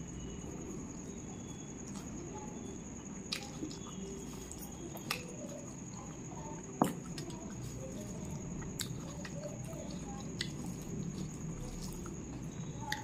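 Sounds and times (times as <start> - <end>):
wet chewing and squelching: 3.2 - 6.0, 6.8 - 13.0.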